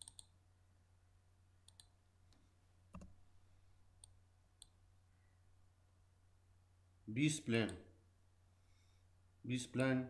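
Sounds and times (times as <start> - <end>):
computer mouse clicks: 0.0 - 0.4, 1.6 - 3.2.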